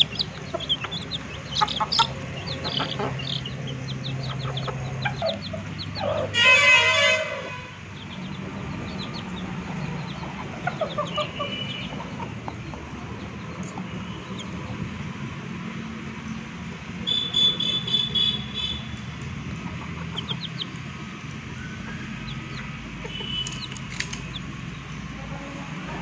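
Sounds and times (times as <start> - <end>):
chicken calling harshly: 0.0 - 7.7
chicks peeping: 0.0 - 15.4, 17.1 - 26.0.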